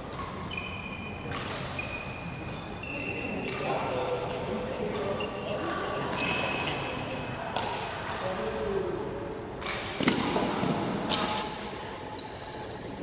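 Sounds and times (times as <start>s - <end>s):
racket hitting shuttlecock: 1.2s - 1.8s, 7.5s - 8.3s, 9.6s - 11.8s.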